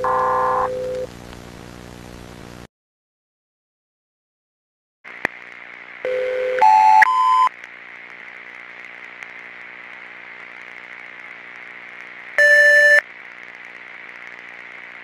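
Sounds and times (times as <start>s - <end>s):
electrical hum with hiss: 0.0s - 2.7s, 5.1s - 15.0s
electronic beeps: 12.4s - 13.0s.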